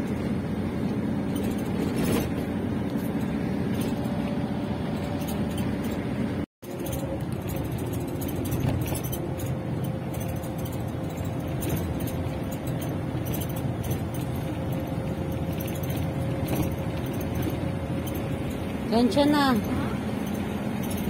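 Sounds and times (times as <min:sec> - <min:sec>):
engine and road noise: 0:00.0 - 0:21.0
light rattles: 0:00.0 - 0:21.0.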